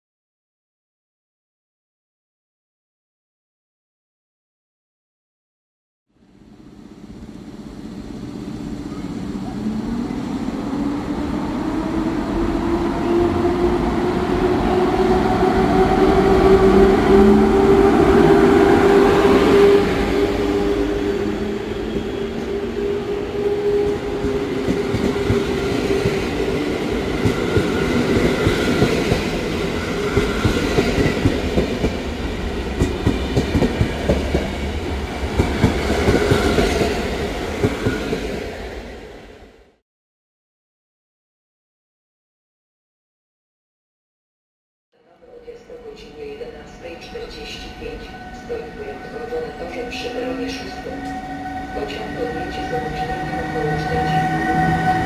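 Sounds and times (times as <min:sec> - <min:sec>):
train wheels clickety-clack: 0:23.8 - 0:32.1, 0:32.7 - 0:34.7, 0:35.3 - 0:37.0.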